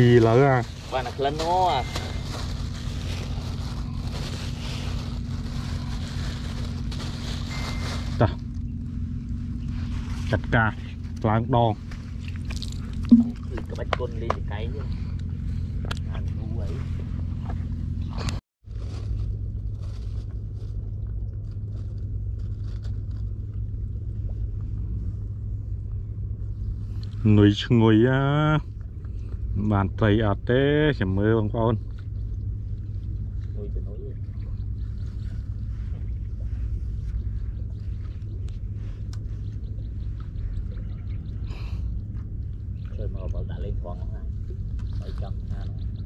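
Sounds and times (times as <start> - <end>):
plastic bag crinkling: 0.0 - 8.6
boat engine droning: 0.0 - 18.4, 19.4 - 46.0
low rumble: 0.0 - 46.0.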